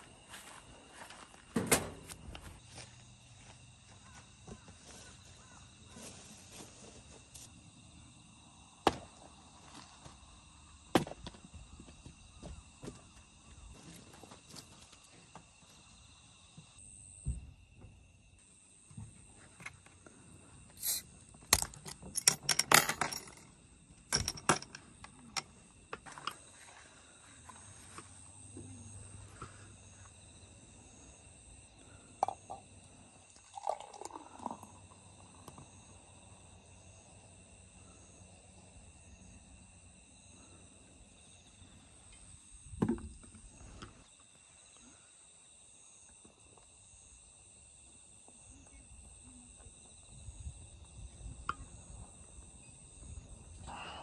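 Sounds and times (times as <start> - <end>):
insects trilling: 0.0 - 54.0
beer pouring into cup: 33.3 - 35.4.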